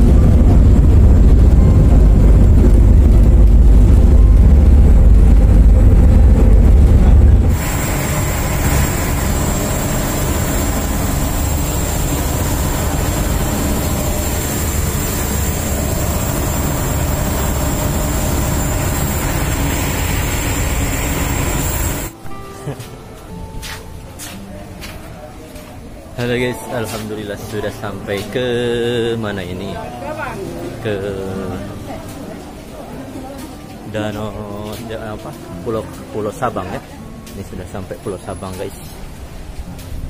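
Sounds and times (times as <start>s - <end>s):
ferry engines droning: 0.0s - 23.4s
wind and wake water hissing: 7.0s - 22.1s.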